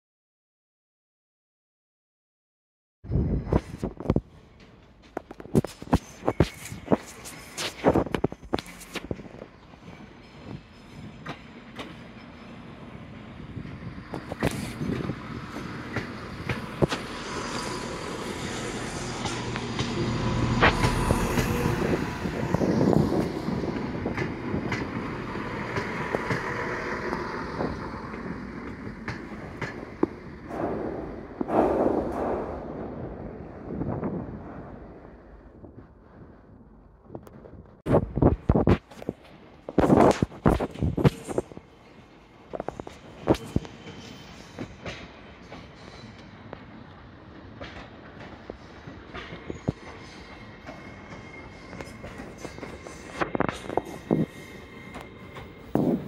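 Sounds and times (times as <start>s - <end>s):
wheels clicking over rail joints: 4.0s - 31.6s, 38.8s - 56.0s
diesel train engines humming: 4.3s - 31.6s, 40.7s - 56.0s.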